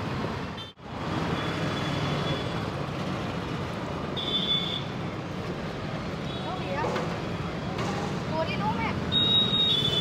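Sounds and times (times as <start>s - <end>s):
street traffic noise: 0.0s - 10.0s.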